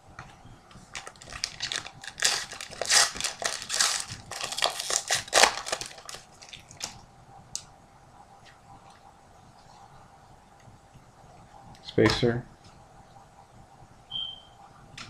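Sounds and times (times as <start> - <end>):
cards being handled: 0.8 - 7.0
wrapper crinkling and tearing: 0.9 - 7.0.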